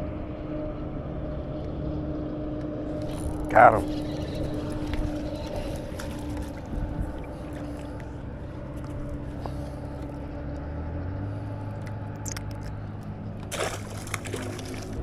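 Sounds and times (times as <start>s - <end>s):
electric motor humming: 2.6s - 13.0s.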